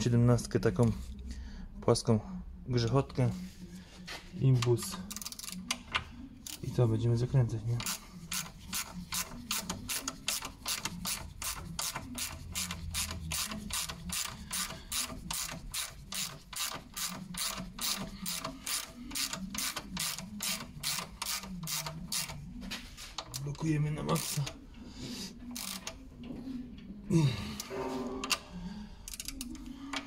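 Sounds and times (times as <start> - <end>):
ratchet wrench clicking: 5.1 - 5.6, 7.8 - 22.4, 25.5 - 26.0.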